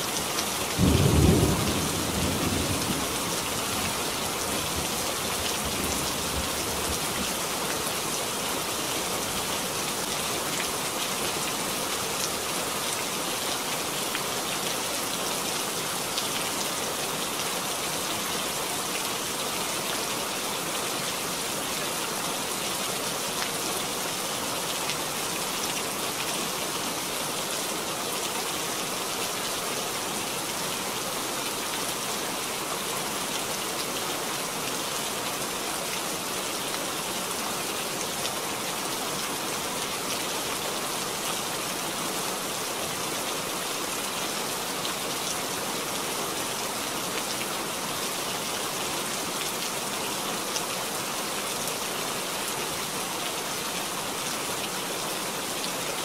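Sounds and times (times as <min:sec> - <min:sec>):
steady rain falling: 0:00.0 - 0:56.0
low rumble of thunder: 0:00.8 - 0:03.3.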